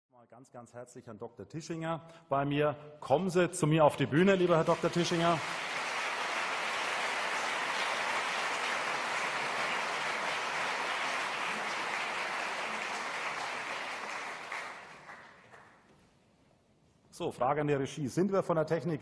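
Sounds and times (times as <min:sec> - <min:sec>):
audience applauding: 0:04.2 - 0:15.9.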